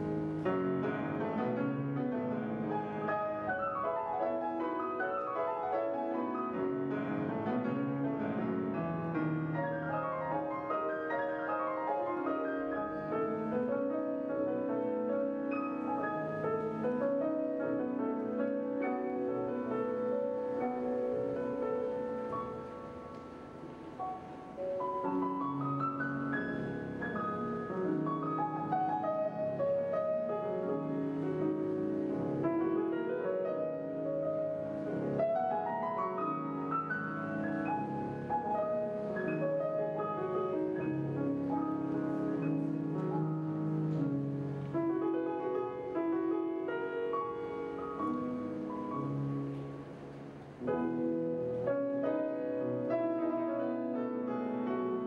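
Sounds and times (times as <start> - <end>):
grand piano classical music: 0.0 - 55.0.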